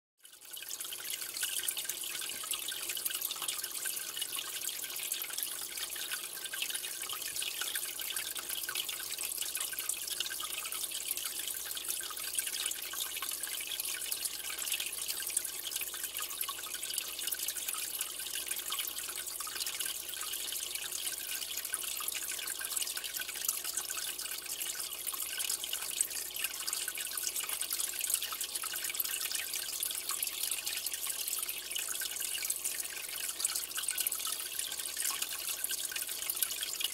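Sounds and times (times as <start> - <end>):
aquarium water trickling and bubbling: 0.2 - 36.9.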